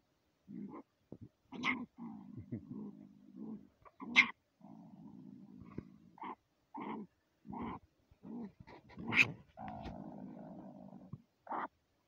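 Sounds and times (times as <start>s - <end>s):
marten growling: 6.8s - 11.2s.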